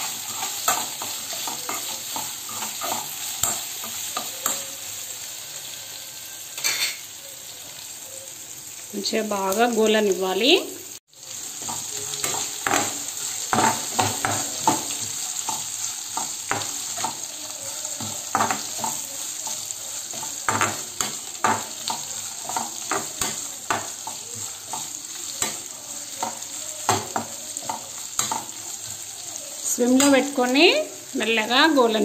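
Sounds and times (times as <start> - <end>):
metal spatula scraping pan: 0.0 - 4.8
chillies and onion sizzling in oil: 0.0 - 32.0.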